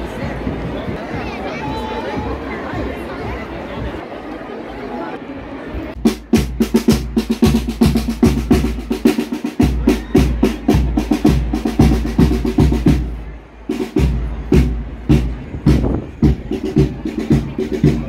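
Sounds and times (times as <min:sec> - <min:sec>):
bass drum beats: 0:06.0 - 0:18.0
snare drum rolls: 0:06.0 - 0:18.0.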